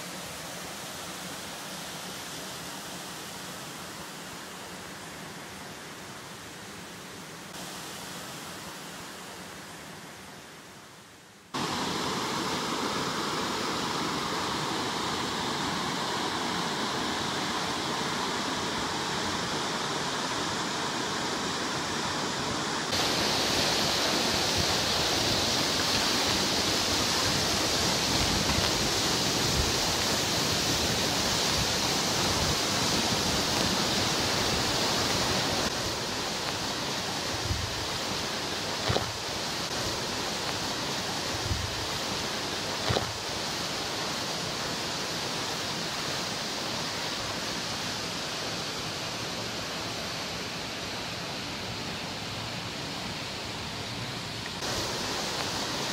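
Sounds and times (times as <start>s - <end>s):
waterfall pouring into pool: 11.5s - 49.9s.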